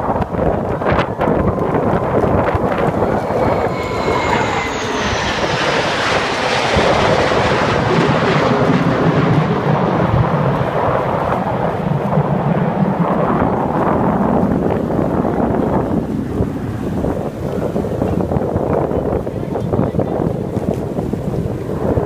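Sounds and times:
jet roar: 0.0 - 17.2
high jet whine falling in pitch: 0.4 - 10.4.

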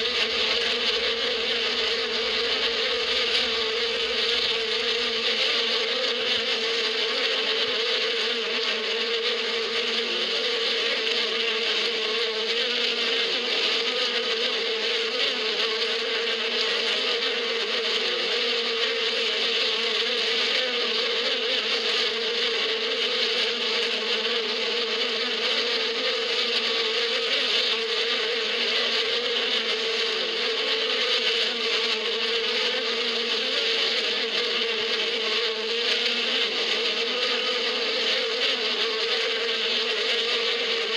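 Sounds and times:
honeybees buzzing: 0.0 - 40.9.

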